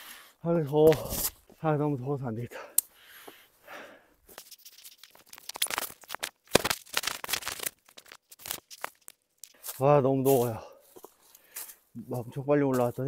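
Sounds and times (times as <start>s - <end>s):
dry leaves crackling: 4.5s - 10.6s.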